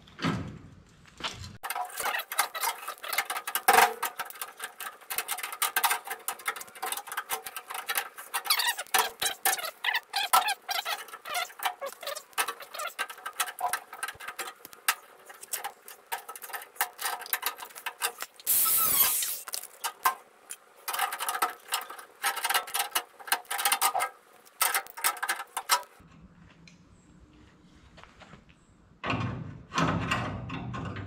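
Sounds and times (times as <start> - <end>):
sheet metal scraping: 1.6 - 20.0
sheet metal squeaks and clicks: 1.6 - 20.0, 20.9 - 26.0.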